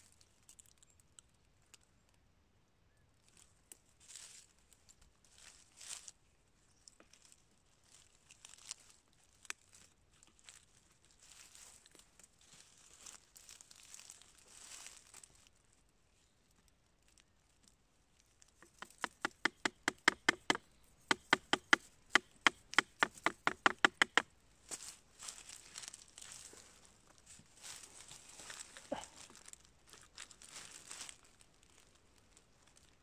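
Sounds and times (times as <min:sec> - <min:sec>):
hands rustling dry leaves: 0:03.2 - 0:16.1, 0:17.1 - 0:33.0
knife chopping rotten wood: 0:18.6 - 0:24.2.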